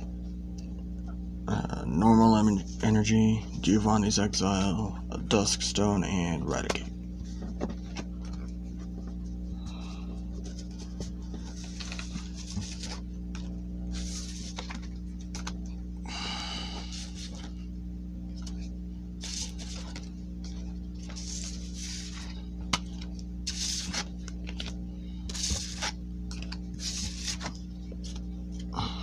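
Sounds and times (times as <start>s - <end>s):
steady low hum: 0.0s - 29.0s
trading cards sliding swish: 21.0s - 22.3s, 23.5s - 24.1s, 25.3s - 26.0s, 26.8s - 27.6s.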